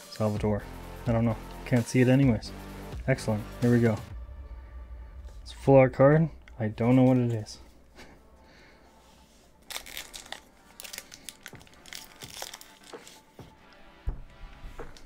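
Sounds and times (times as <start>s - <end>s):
foil wrapper crinkling and tearing: 9.6s - 13.5s.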